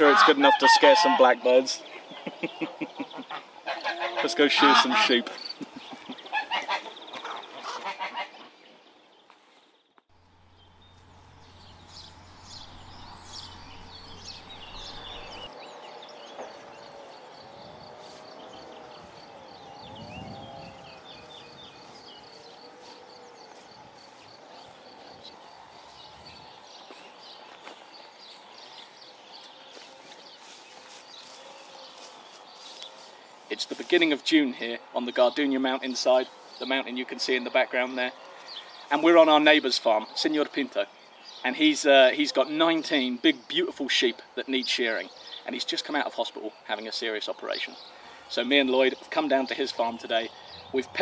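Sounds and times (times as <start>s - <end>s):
drawn-out animal calls: 0.0s - 5.3s, 6.1s - 8.6s, 10.4s - 26.2s
birdsong: 0.0s - 51.0s
man laughing: 1.9s - 3.5s, 5.2s - 6.3s.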